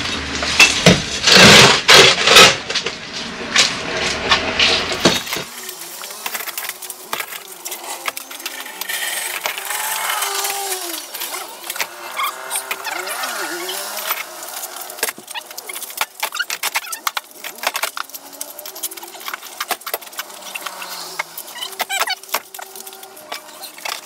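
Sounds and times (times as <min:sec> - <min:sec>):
bricks clinking and knocking: 0:04.9 - 0:24.0.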